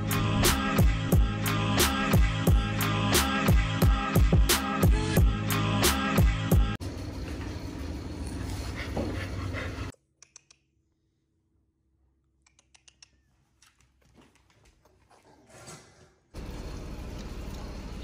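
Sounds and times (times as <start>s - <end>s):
music: 0.0s - 6.8s.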